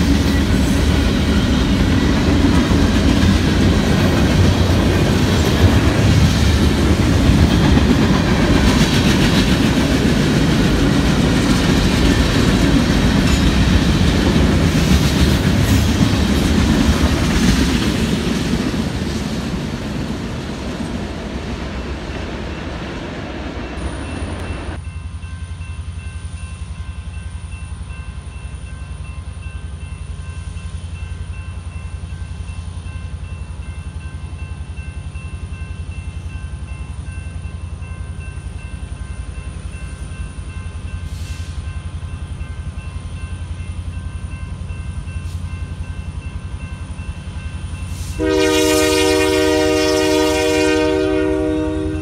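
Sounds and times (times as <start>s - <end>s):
freight train rolling past: 0.0s - 52.0s.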